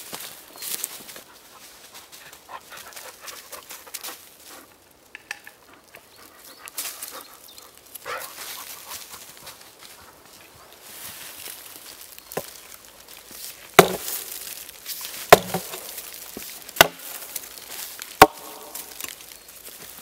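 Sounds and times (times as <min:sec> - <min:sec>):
footsteps in dry leaves: 0:00.0 - 0:04.8, 0:06.3 - 0:20.0
wooden poles knocking: 0:13.8 - 0:14.4, 0:15.3 - 0:16.0, 0:16.8 - 0:17.3, 0:18.2 - 0:19.0.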